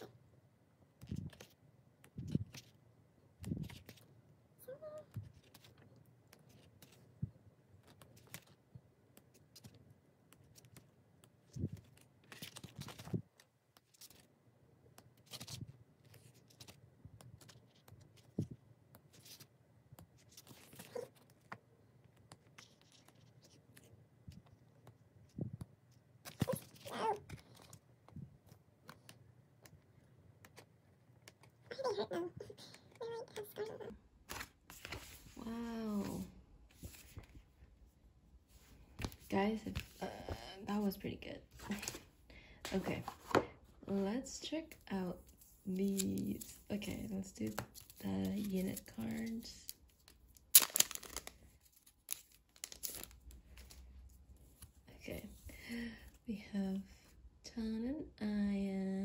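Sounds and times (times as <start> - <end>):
pages turning: 1.0 - 2.8, 3.4 - 4.1, 5.1 - 14.3, 14.9 - 29.8, 30.4 - 37.4, 38.5 - 40.0, 41.6 - 42.1, 42.7 - 43.5, 45.2 - 55.4
paper rustling: 1.0 - 2.8, 3.4 - 4.1, 5.1 - 14.3, 14.9 - 29.8, 30.4 - 37.4, 41.6 - 43.6, 45.2 - 55.4.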